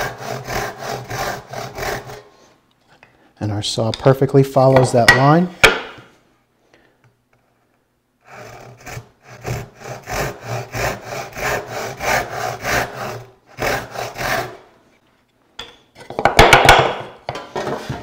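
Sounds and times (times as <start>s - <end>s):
handsaw rasping through wood: 0.0s - 2.3s, 8.2s - 14.6s.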